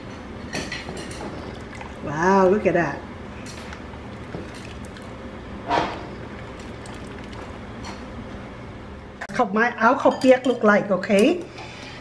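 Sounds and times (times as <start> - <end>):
ladle scooping soup: 1.0 - 2.6, 3.4 - 8.2
simmering pot bubbling: 1.0 - 8.3
liquid splash: 4.0 - 5.2, 6.4 - 8.0.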